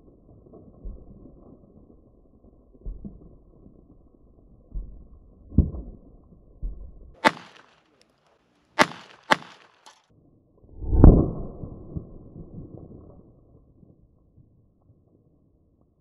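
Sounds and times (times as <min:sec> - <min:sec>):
pistol shots: 0:07.2 - 0:07.8, 0:08.8 - 0:10.0
loud low rumble: 0:10.7 - 0:12.6.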